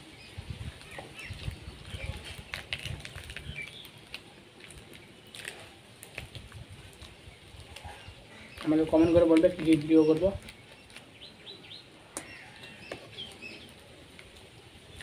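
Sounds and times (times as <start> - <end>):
chewing pastry: 0.8 - 8.7.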